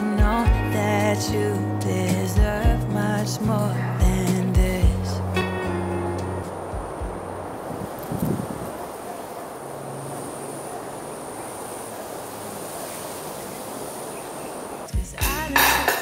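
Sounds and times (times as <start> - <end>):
background hiss: 0.0 - 16.0
insects droning: 3.0 - 16.0
tableware clinking: 15.6 - 16.0.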